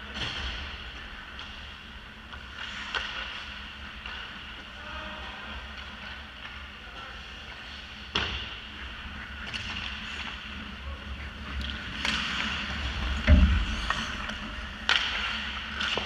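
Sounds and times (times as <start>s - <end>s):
low rink rumble: 0.0s - 16.0s
hockey sticks and puck clacking: 2.3s - 4.7s, 11.5s - 16.0s
skate blades scraping ice: 8.8s - 16.0s
heavy thump: 13.2s - 13.9s.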